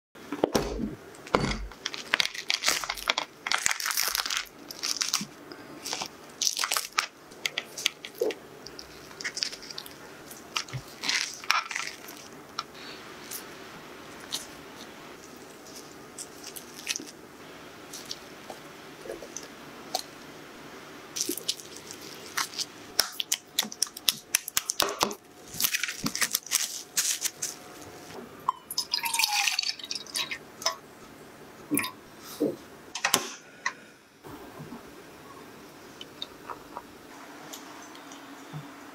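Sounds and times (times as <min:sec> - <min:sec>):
fruit husk cracking and tearing: 0:01.8 - 0:12.4.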